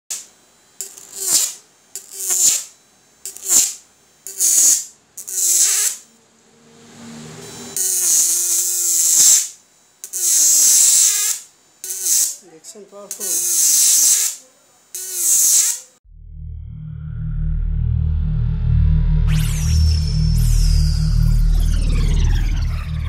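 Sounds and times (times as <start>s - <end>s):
electric arc buzzing: 0.1s - 6.3s, 7.3s - 16.0s
low electrical hum: 0.1s - 6.9s.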